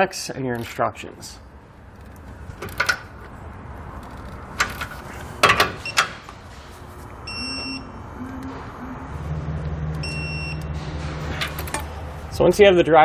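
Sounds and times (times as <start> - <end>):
low steady hum: 1.0 - 12.8
short high beeps: 7.3 - 9.1, 10.0 - 10.7.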